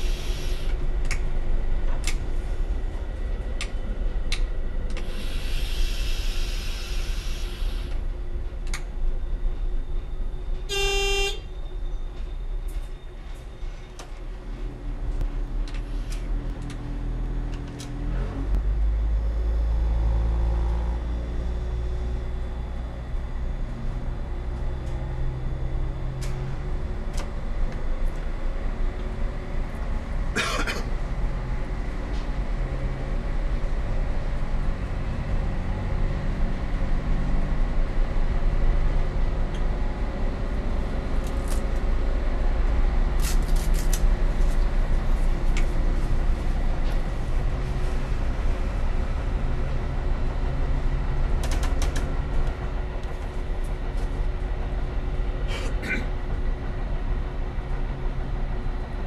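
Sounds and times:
diesel railcar engine running: 0:00.0 - 0:59.0
train horn toot: 0:10.6 - 0:11.6
wheels clicking over rails: 0:51.0 - 0:56.4.

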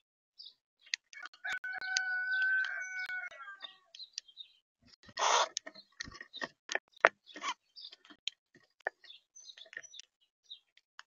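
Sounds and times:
high bird chirps: 0:00.4 - 0:08.1.

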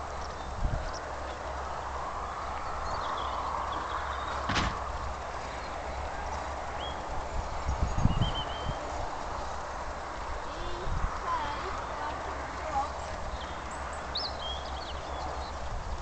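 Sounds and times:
steady rushing hiss: 0:00.0 - 0:16.0
sharp knock: 0:04.5 - 0:04.8.

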